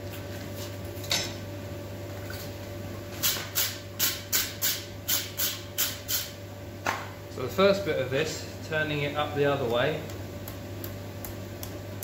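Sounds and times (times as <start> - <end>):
steady hum: 0.0 - 12.0.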